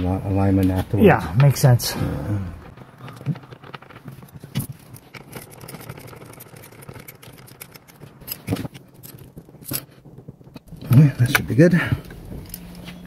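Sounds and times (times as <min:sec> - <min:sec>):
clicking and handling noises: 0:02.6 - 0:13.0.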